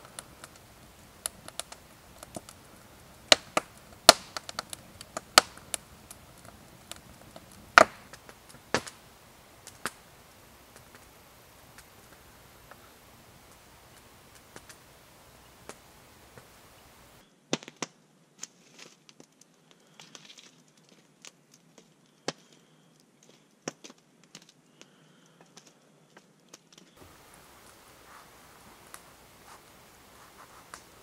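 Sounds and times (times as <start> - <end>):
faint hiss: 0.0 - 17.3, 26.9 - 31.0
campfire crackling and popping: 0.0 - 31.0.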